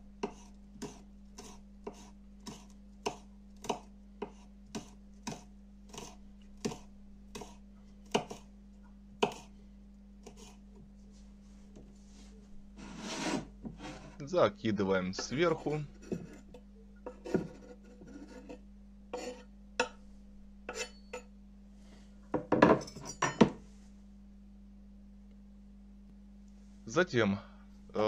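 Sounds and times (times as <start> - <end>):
knife chopping on wooden board: 0.2 - 8.5, 9.2 - 9.5, 17.1 - 18.6.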